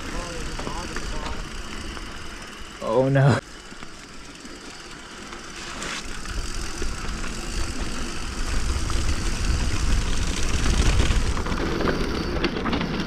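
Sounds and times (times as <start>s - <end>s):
bike tyres rolling on dirt: 0.0s - 13.0s
wind buffeting microphone: 7.6s - 12.3s.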